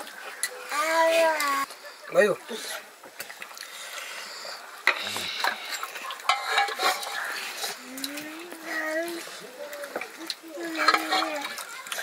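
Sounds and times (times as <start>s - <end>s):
metal spoon scraping in a pot: 5.4s - 8.2s, 10.7s - 11.7s.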